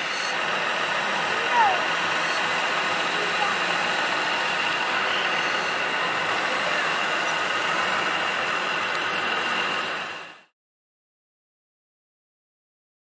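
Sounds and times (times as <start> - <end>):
electric motor whining: 0.0 - 10.3
hiss of wheels in sand: 0.0 - 10.5.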